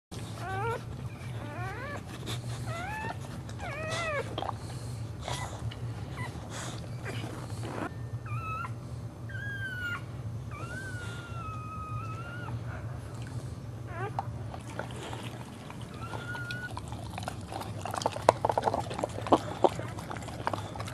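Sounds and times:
steady low hum: 0:00.1 - 0:20.9
dog whining: 0:00.2 - 0:13.0, 0:13.8 - 0:20.9.

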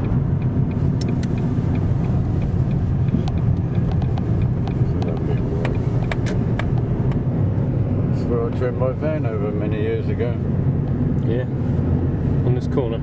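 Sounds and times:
car engine and road noise: 0:00.0 - 0:13.0.

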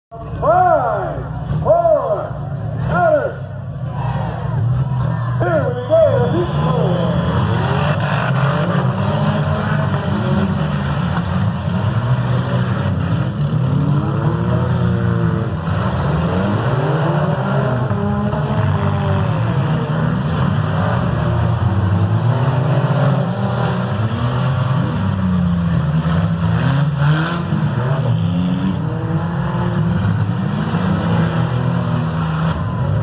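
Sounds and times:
car engines revving: 0:00.1 - 0:33.0.

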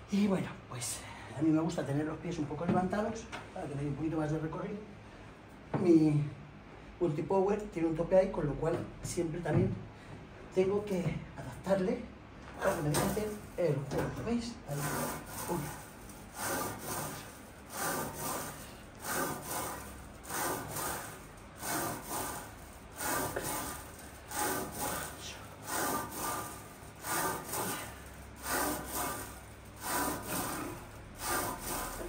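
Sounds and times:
woman breathing heavily: 0:27.3 - 0:28.3.

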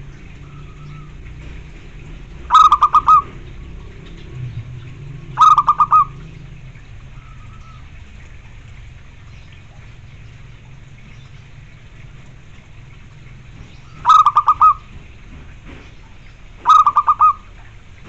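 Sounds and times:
dove cooing: 0:02.3 - 0:03.9, 0:05.2 - 0:07.9, 0:13.8 - 0:15.1, 0:16.6 - 0:17.6.

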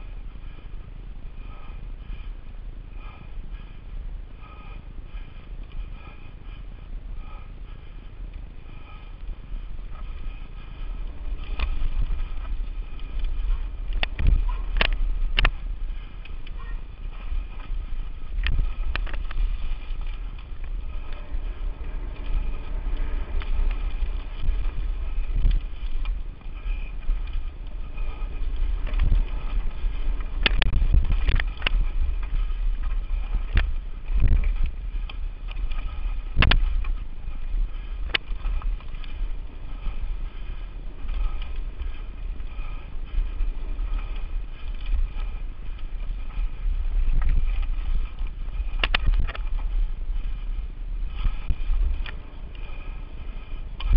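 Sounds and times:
mountain bike rattling on dirt trail: 0:00.0 - 0:53.9
wind buffeting microphone: 0:00.0 - 0:53.9
bike knocking on bumps: 0:10.1 - 0:53.9.

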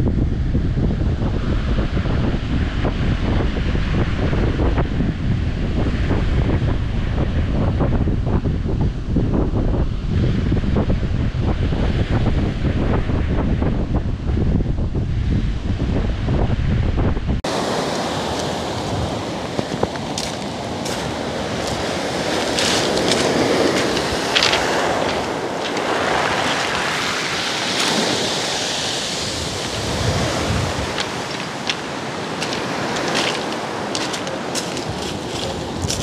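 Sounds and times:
surf washing up pebble beach: 0:17.4 - 0:36.0.

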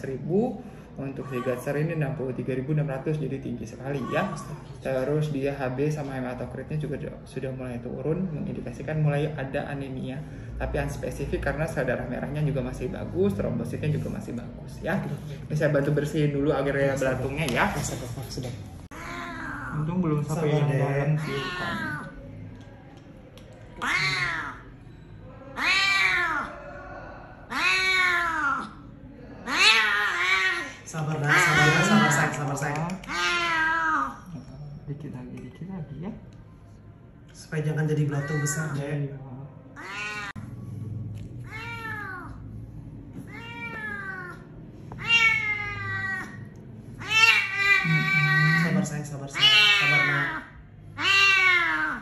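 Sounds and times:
cat meowing in distress: 0:18.9 - 0:19.9, 0:21.1 - 0:22.2, 0:23.8 - 0:24.6, 0:25.5 - 0:26.6, 0:27.5 - 0:28.8, 0:33.1 - 0:34.4, 0:38.1 - 0:38.8, 0:39.8 - 0:40.4, 0:41.4 - 0:42.5, 0:43.2 - 0:52.0.

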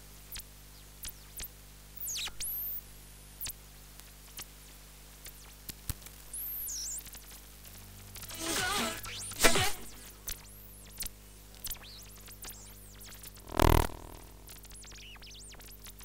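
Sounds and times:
crackling clicks: 0:13.4 - 0:14.6
faint static: 0:13.4 - 0:14.7
low steady hum: 0:13.4 - 0:14.7.

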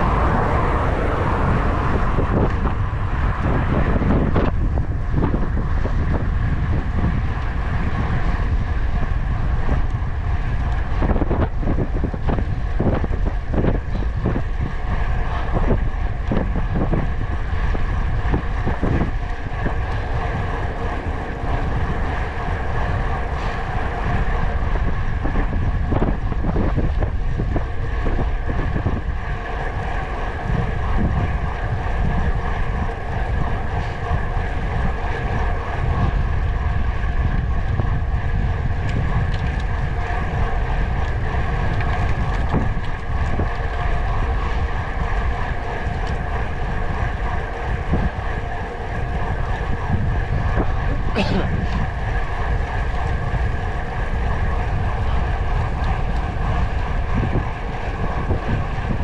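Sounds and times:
vehicle rumble and drone: 0:00.0 - 0:59.0
wind buffeting microphone: 0:00.0 - 0:59.0.

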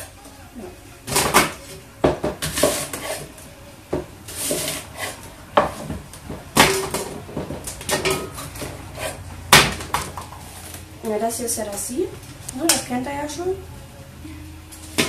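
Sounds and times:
knife blade scraping: 0:02.5 - 0:03.3, 0:04.3 - 0:05.2, 0:08.3 - 0:09.2.

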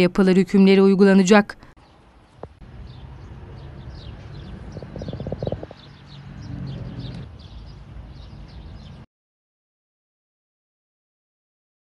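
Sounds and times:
small birds chirping: 0:01.8 - 0:09.1
steady low rumble: 0:02.3 - 0:07.3.

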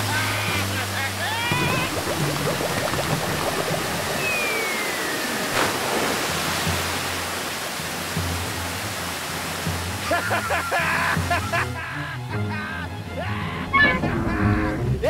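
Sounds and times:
cartoon rushing water: 0:00.0 - 0:11.8
falling whistle: 0:04.1 - 0:05.6.

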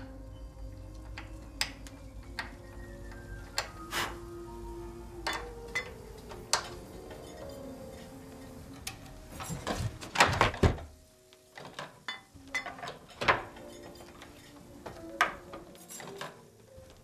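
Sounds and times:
wooden parts knocking together: 0:09.4 - 0:17.0.

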